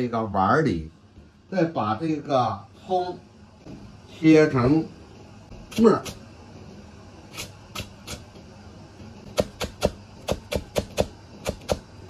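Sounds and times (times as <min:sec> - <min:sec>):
cleaver chopping on plastic board: 0:09.3 - 0:11.9.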